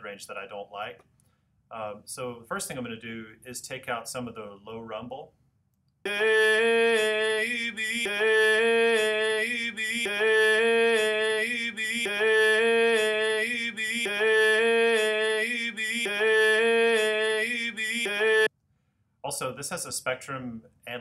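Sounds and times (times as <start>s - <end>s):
looped sung vocal phrase: 6.1s - 18.5s.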